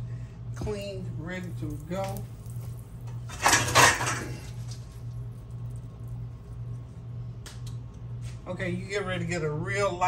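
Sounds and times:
steady low hum: 0:00.0 - 0:10.0
kitchen handling noise: 0:03.3 - 0:04.6.

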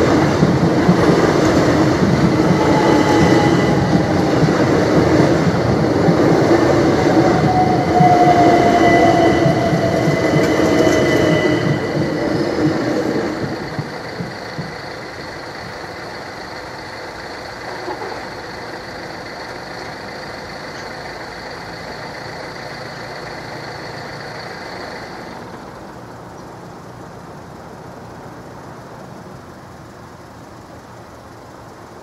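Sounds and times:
level crossing warning alarm: 0:00.0 - 0:17.6
car engine idling: 0:00.0 - 0:32.0.

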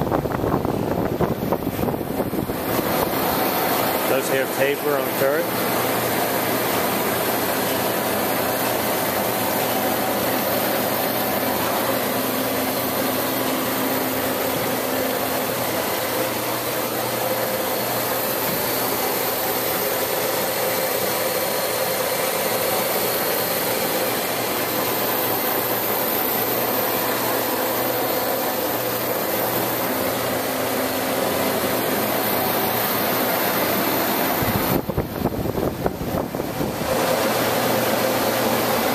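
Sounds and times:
lathe motor humming: 0:00.0 - 0:38.9.

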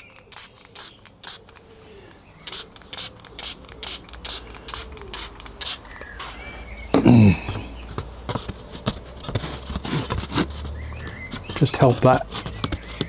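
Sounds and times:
spray bottle hissing sprays: 0:00.0 - 0:01.6, 0:02.4 - 0:06.4.

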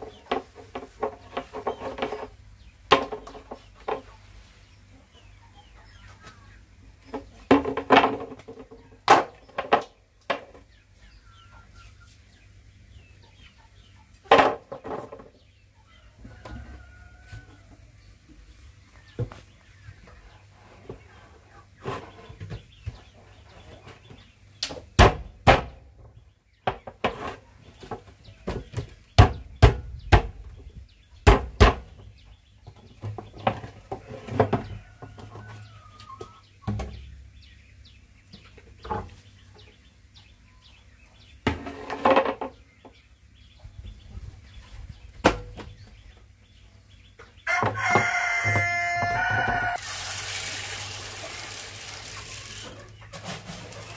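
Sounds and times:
chickens clucking: 0:00.0 - 0:24.9, 0:26.0 - 0:49.8, 0:50.6 - 0:53.9
rooster crowing: 0:16.1 - 0:17.8, 0:47.4 - 0:49.9.

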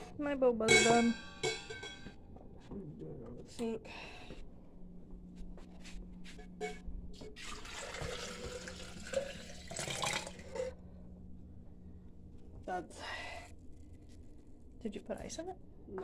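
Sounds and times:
water running into a sink: 0:07.4 - 0:10.6.

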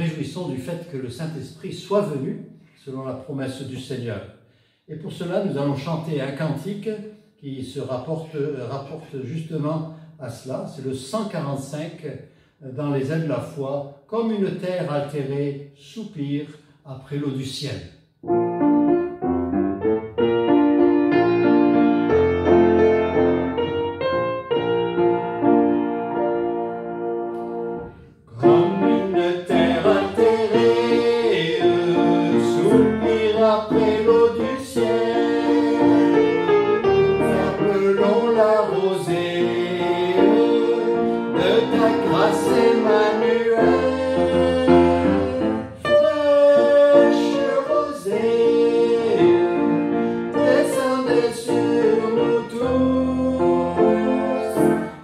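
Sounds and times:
piano playing slow chords: 0:18.2 - 0:55.0
man singing a hymn: 0:28.3 - 0:55.0.

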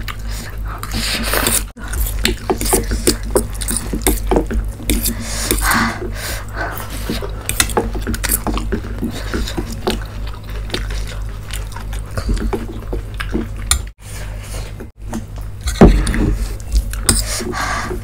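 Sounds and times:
chewing and mouth smacks: 0:06.8 - 0:13.9.

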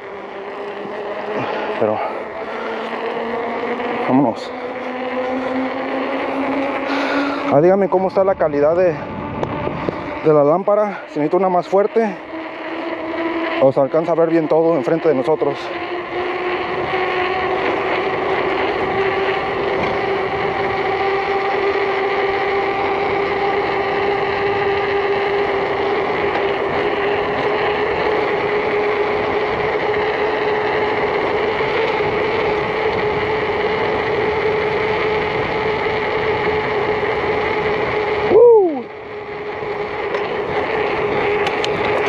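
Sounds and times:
bike tyres humming on asphalt: 0:00.0 - 0:42.0
wind rushing past camera: 0:06.4 - 0:10.3.

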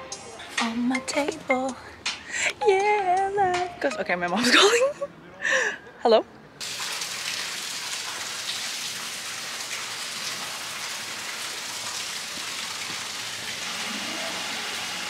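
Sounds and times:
rain falling: 0:06.6 - 0:15.0.

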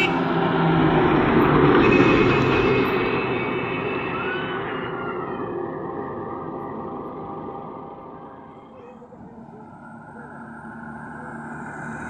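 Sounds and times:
bus passing by: 0:00.0 - 0:08.2.

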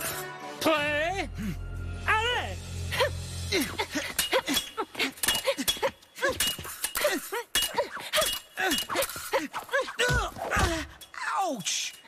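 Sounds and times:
fencing blades clashing: 0:03.8 - 0:12.0.

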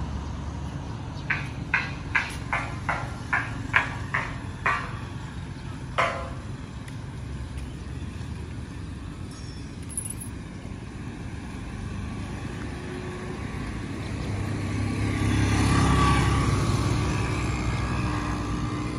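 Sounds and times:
steady road noise: 0:00.0 - 0:18.9
motor vehicle passing: 0:09.9 - 0:18.9.

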